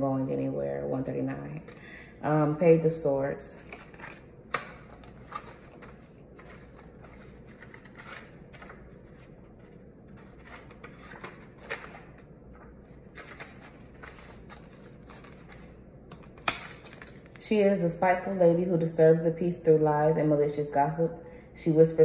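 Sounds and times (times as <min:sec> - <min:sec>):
book pages rustling: 0:03.6 - 0:17.4.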